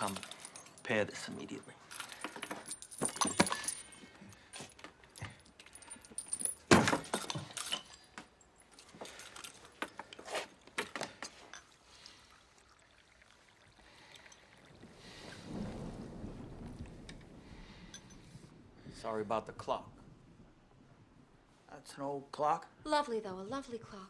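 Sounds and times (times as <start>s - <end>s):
metallic clinks from clock parts: 0.0s - 11.8s
tea pouring into cup: 10.1s - 15.7s.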